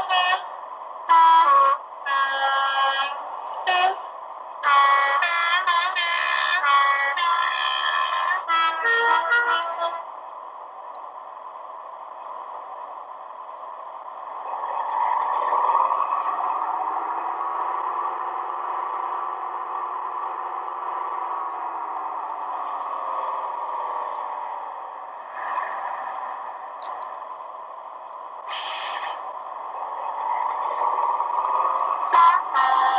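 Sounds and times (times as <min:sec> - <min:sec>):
diesel engine sound from small speaker: 0:00.0 - 0:32.9
short rush of noise: 0:28.5 - 0:29.3.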